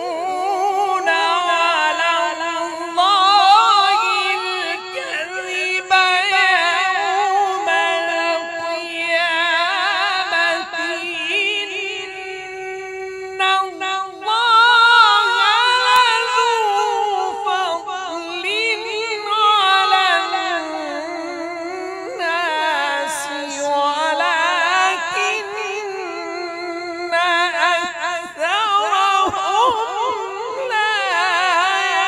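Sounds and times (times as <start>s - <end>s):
man reciting melodically into a microphone: 0.0s - 32.0s.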